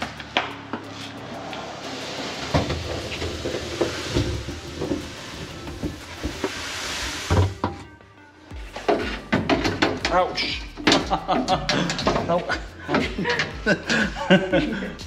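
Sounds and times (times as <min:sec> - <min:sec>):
sand pouring into hopper: 0:01.6 - 0:07.6.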